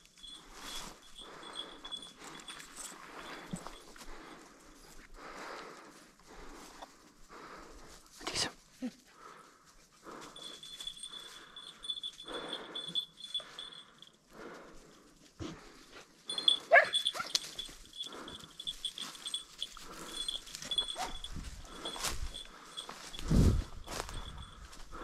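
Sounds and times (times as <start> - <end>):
pulsing ringing tone: 0.0 - 4.4, 10.1 - 14.1, 16.3 - 25.0.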